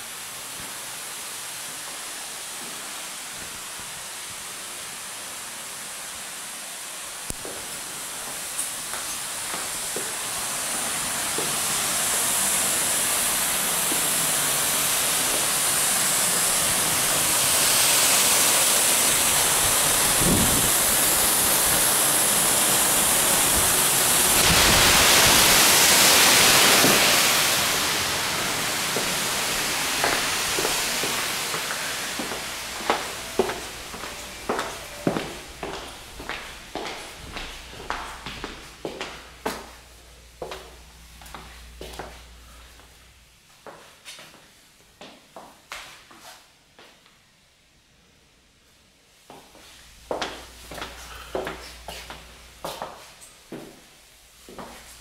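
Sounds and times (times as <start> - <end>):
steady rushing hiss: 0.0 - 44.8, 49.0 - 55.0
footsteps on hard floor: 7.4 - 10.2, 30.0 - 39.8, 40.4 - 43.0, 49.3 - 53.8, 54.5 - 54.9.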